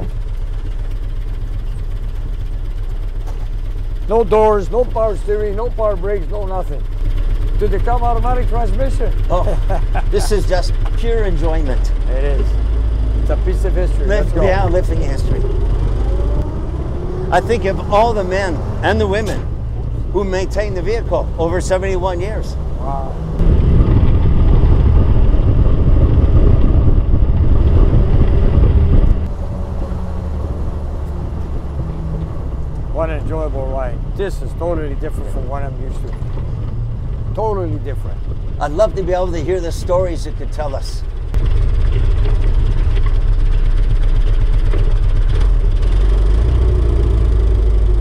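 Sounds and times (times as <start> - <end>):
jeep engine pulling: 0.0 - 48.0
road noise: 0.0 - 48.0
wind noise: 14.0 - 48.0.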